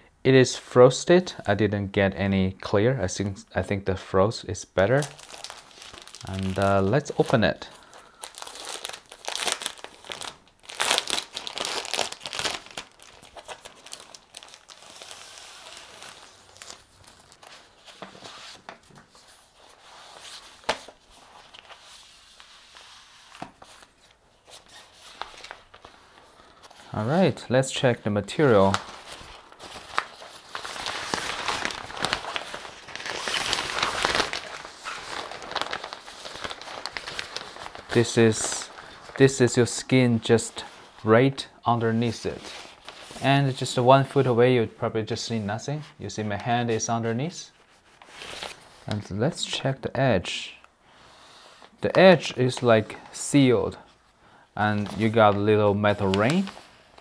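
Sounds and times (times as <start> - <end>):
plastic bag crinkling: 4.9 - 19.1, 23.6 - 27.2, 28.2 - 39.8.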